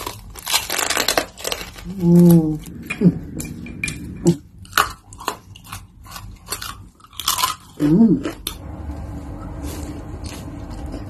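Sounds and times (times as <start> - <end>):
person humming: 1.8 - 4.4, 7.8 - 8.3
crunchy bite: 4.6 - 8.6.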